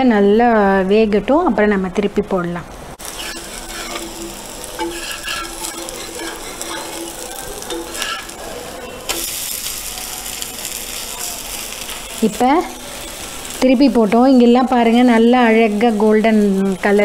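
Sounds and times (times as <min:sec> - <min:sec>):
metal spatula scraping: 0:03.0 - 0:10.8
batter sizzling on a griddle: 0:03.0 - 0:17.0.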